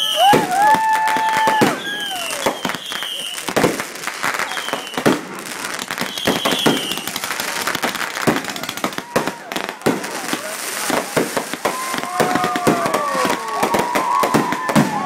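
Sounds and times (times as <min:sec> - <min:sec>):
high falling firework whistles: 0:00.0 - 0:03.6, 0:04.4 - 0:05.2, 0:06.0 - 0:07.6, 0:11.5 - 0:15.0
firework bangs and crackling: 0:00.0 - 0:15.0.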